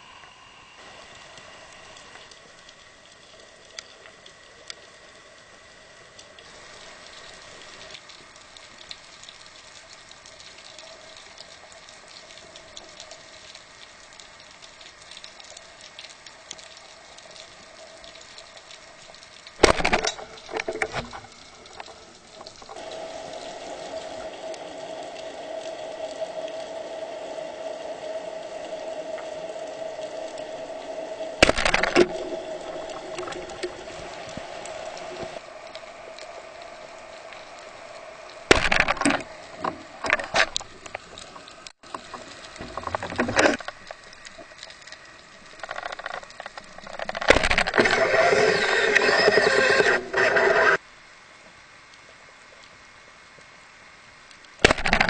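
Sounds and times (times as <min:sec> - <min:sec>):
underwater hiss: 0:00.0 - 0:02.6
faint crackles: 0:00.0 - 0:55.0.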